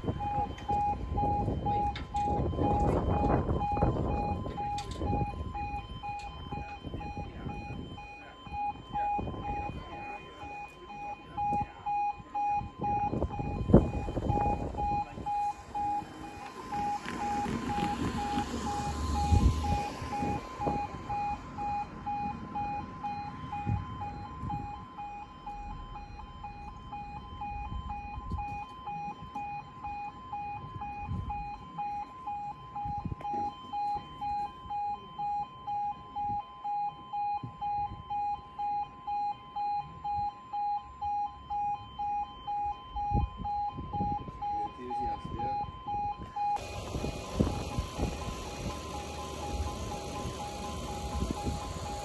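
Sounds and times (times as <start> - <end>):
level crossing alarm beeping: 0.0 - 52.0
broad rushing noise: 46.6 - 52.0.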